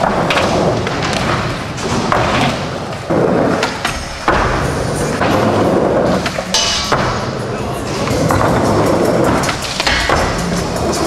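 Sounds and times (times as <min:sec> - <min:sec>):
skateboard thuds: 0:00.0 - 0:05.6
skateboard wheels rolling: 0:00.0 - 0:11.0.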